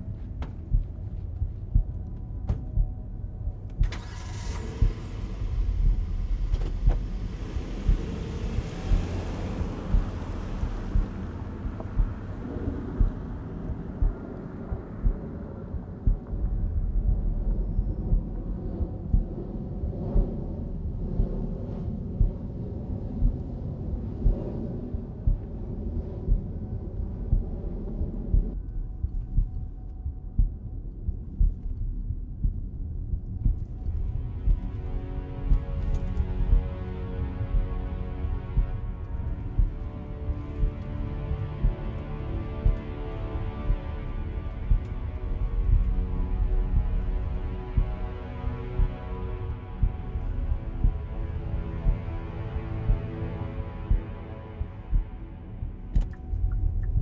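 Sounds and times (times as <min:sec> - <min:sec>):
low thumps: 0:00.0 - 0:03.9, 0:04.8 - 0:52.2, 0:52.8 - 0:57.0
low rumble: 0:00.0 - 0:57.0
car engine starting and idling: 0:03.7 - 0:12.0.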